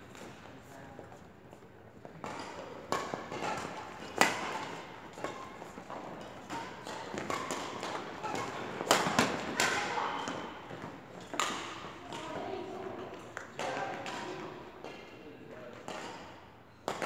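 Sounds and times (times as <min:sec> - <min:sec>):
rackets striking shuttlecocks: 0:02.1 - 0:12.4, 0:13.1 - 0:15.0, 0:15.8 - 0:17.0.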